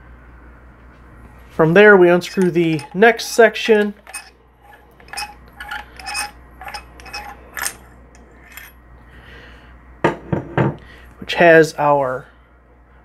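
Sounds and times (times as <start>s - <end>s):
metal handle pieces clinking: 2.2s - 7.8s.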